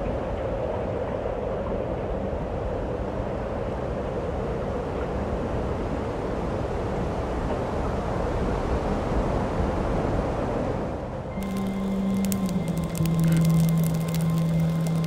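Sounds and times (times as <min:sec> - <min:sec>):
low rumble of noise: 0:11.1 - 0:15.0
held low note with crackling: 0:11.3 - 0:15.0.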